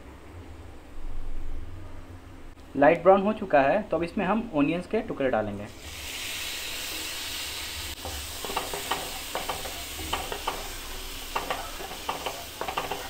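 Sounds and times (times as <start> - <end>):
onions sizzling in frying pan: 5.7 - 13.0.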